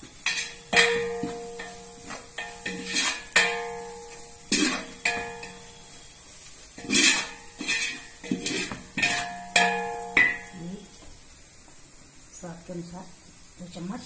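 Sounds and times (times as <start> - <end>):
skimmer scraping metal pot: 0.0 - 6.0, 6.8 - 10.5
skimmer knocking pot ringing: 0.2 - 6.1, 7.1 - 10.8.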